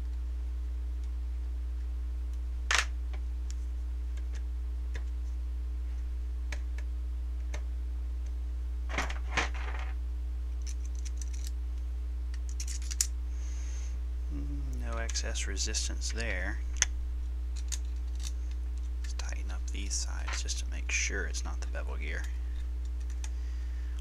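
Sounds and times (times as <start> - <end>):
steady low hum: 0.0 - 24.0
small metal and plastic parts clicking: 10.6 - 11.5, 12.3 - 13.1, 17.6 - 20.5.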